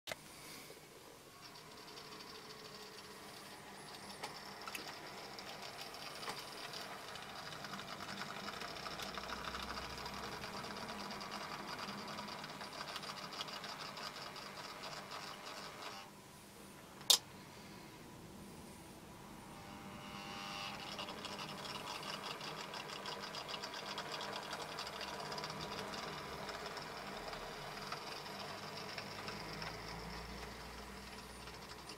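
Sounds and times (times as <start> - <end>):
model train wheels rattling: 1.4 - 15.8, 20.9 - 31.9
model train motor whirring: 1.4 - 16.1, 20.1 - 31.9.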